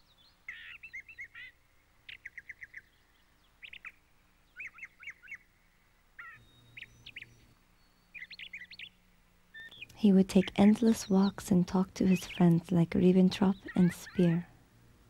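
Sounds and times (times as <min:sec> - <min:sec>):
songbird chirping: 0:00.0 - 0:14.6.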